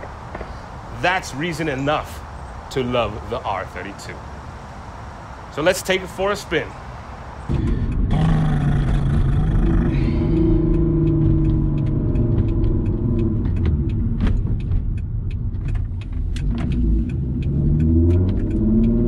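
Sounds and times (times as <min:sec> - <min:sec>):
car engine accelerating: 0:07.5 - 0:19.0.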